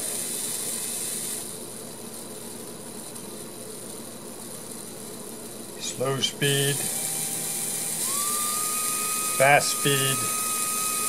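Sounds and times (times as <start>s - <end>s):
small electric motor whirring: 0.0s - 1.6s, 5.9s - 11.0s.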